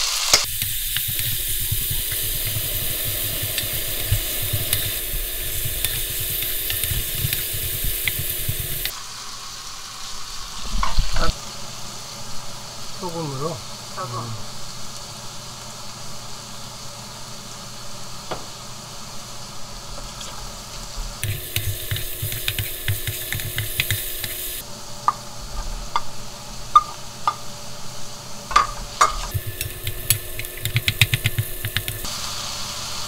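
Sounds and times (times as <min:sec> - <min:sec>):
potatoes sizzling in a wok: 0:00.0 - 0:33.0
wooden spoon scraping pan: 0:21.2 - 0:24.6.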